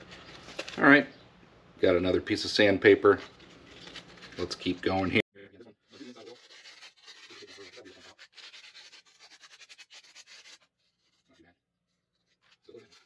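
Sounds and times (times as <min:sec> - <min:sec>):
sandpaper rubbing plastic: 0:05.9 - 0:13.0.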